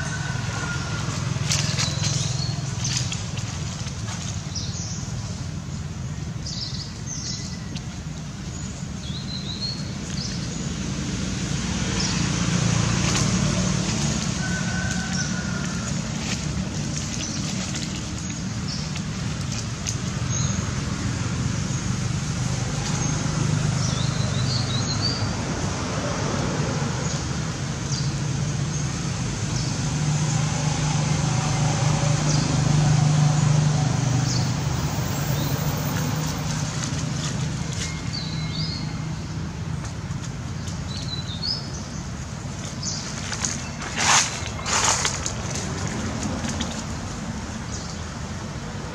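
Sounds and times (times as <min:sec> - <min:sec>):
distant road traffic rumble: 0:00.0 - 0:48.9.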